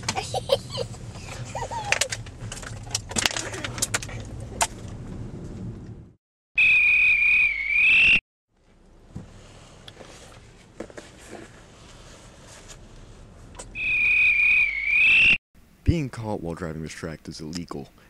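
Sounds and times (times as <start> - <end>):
pea whistle blast: 6.6 - 8.2, 13.8 - 15.4.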